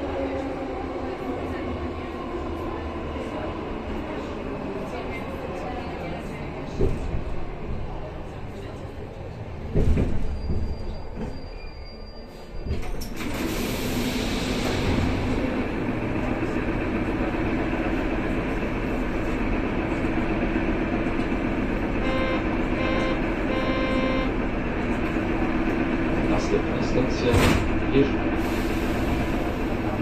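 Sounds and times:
stationary train hum: 0:00.0 - 0:12.0, 0:12.6 - 0:30.0
train doors hissing open: 0:09.8 - 0:15.4, 0:28.4 - 0:29.9.

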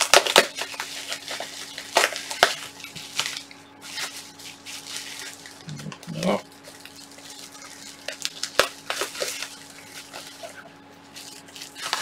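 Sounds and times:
faint steady hum: 0:00.0 - 0:12.0
packaging rustling: 0:00.0 - 0:12.0.

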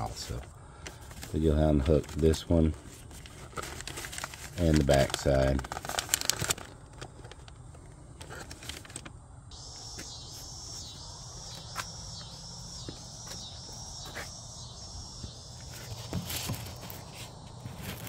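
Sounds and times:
insects chirring: 0:04.6 - 0:18.0.

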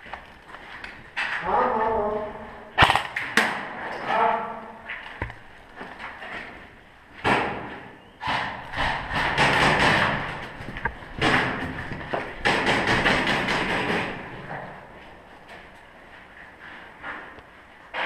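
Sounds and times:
thuds and knocks: 0:07.2 - 0:14.6.

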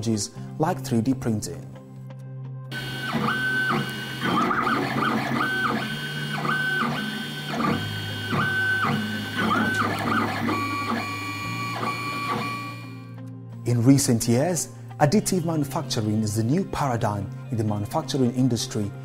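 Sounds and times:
stepper motors whining: 0:02.7 - 0:13.0.

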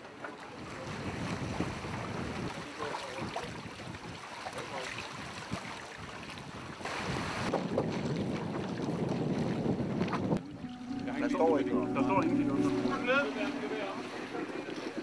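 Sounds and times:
water rushing past hulls: 0:00.0 - 0:15.0
wind buffeting microphone: 0:00.6 - 0:04.2, 0:05.0 - 0:10.6.

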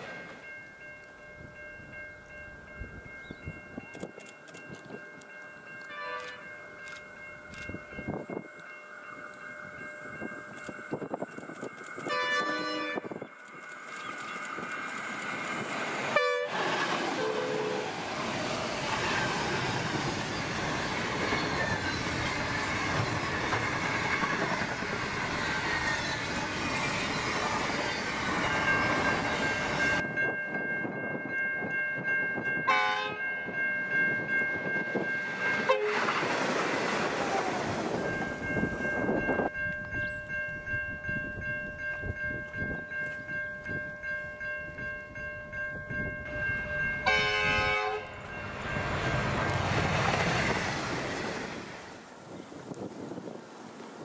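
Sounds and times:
freight train rumbling past: 0:00.0 - 0:03.9, 0:04.6 - 0:54.0
diesel railcar approaching: 0:00.0 - 0:54.0
train horn: 0:05.9 - 0:06.5, 0:12.1 - 0:13.1, 0:16.1 - 0:18.0, 0:32.7 - 0:33.3, 0:35.6 - 0:36.1, 0:47.0 - 0:48.2
level crossing bells ringing: 0:38.0 - 0:49.3.

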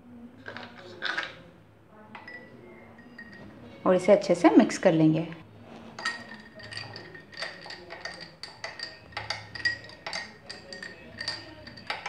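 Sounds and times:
spoon clinking ice in a glass: 0:00.4 - 0:01.5, 0:02.2 - 0:03.8, 0:05.8 - 0:12.0.

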